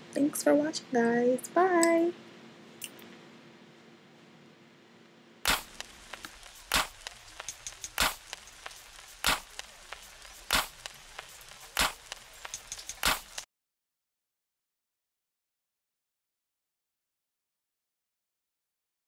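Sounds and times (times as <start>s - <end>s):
faint room hum: 0.0s - 13.4s
percussive beat: 5.5s - 13.4s.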